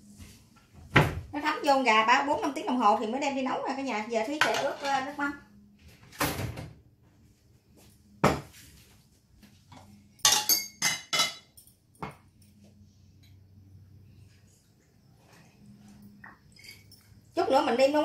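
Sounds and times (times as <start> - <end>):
utensils clinking against steel pot: 10.2 - 11.8.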